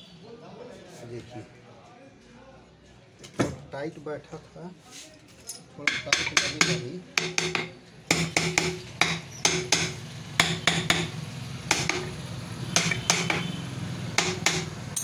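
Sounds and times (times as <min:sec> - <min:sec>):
hammer tapping on metal casing: 0:05.9 - 0:12.2, 0:12.8 - 0:13.5, 0:14.2 - 0:15.0.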